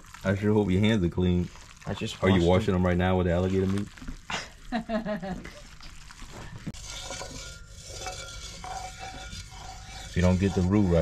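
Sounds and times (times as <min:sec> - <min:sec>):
faint sizzle: 0:00.0 - 0:11.0
spoon scraping a pot: 0:06.6 - 0:11.0.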